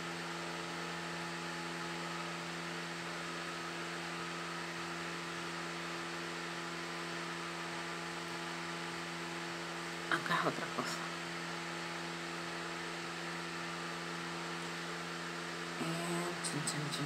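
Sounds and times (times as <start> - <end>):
electrical hum: 0.0 - 17.0.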